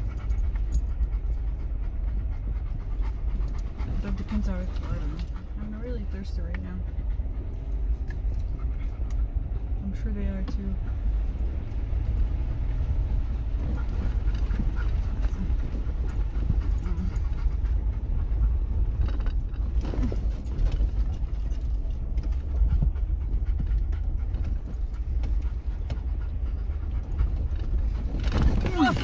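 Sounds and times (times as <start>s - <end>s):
dog panting: 0.0s - 29.0s
vehicle rumbling over dirt trail: 0.0s - 29.0s
rattles and knocks: 11.2s - 29.0s.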